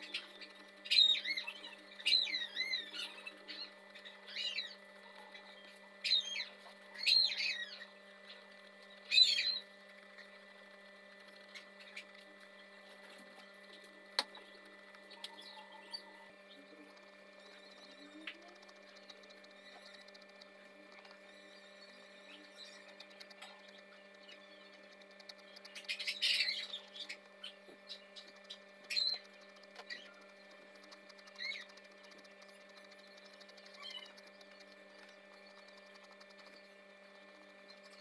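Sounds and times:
bird chirping: 0.0s - 38.0s
electrical hum: 0.0s - 38.0s.

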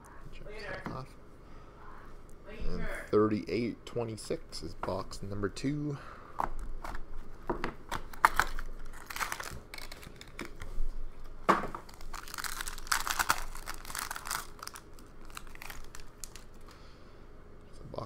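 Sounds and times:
plastic wrap crinkling and tearing: 8.0s - 10.7s, 11.8s - 16.7s.

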